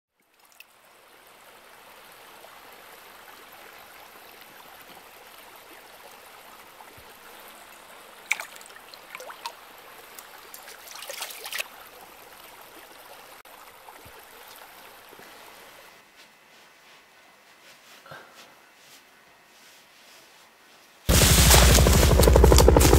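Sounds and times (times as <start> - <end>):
water splashes: 0.1 - 15.9
stream water rushing: 0.3 - 15.9.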